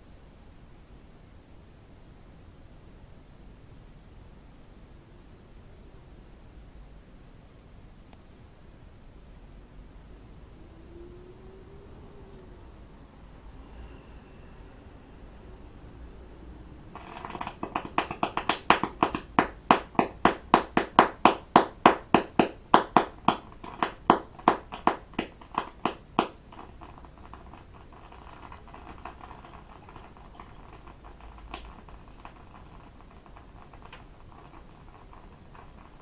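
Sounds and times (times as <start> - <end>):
faint crackling: 16.4 - 36.0
chemical mixture popping: 16.8 - 36.0.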